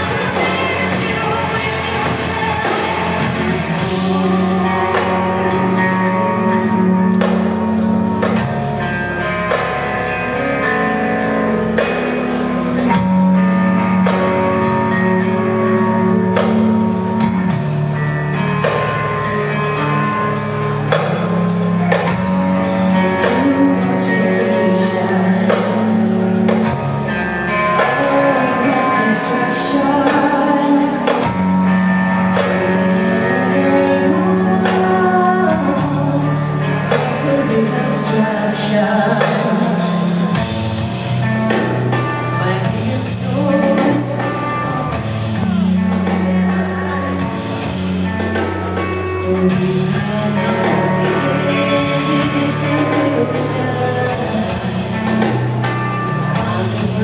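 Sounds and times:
metal band playing live: 0:00.0 - 0:57.0
woman singing: 0:00.0 - 0:57.0.

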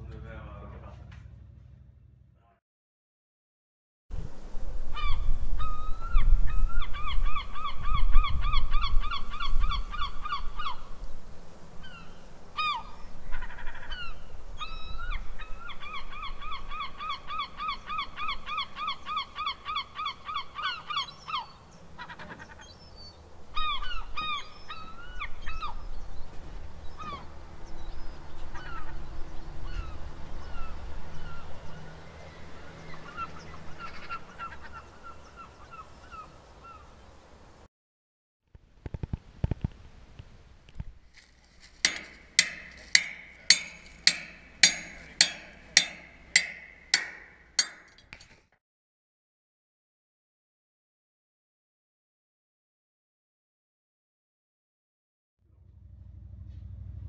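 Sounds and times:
low rumble: 0:00.0 - 0:02.6, 0:55.4 - 0:57.0
gulls laughing calls: 0:11.8 - 0:26.0, 0:26.9 - 0:36.9, 0:41.8 - 0:47.9.

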